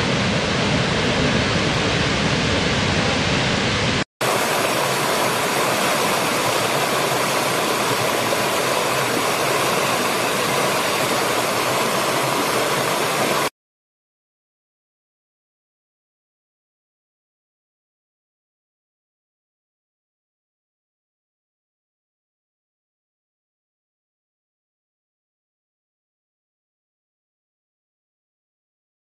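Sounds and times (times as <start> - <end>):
large waterfall rushing: 0.0 - 13.5
stream tumbling over rocks: 4.2 - 13.5.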